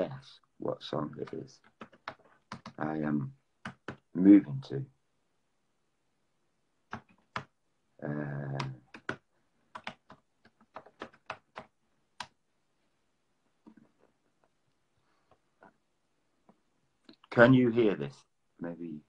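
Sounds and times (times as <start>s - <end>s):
fingers tapping on a device: 8.4s - 12.4s.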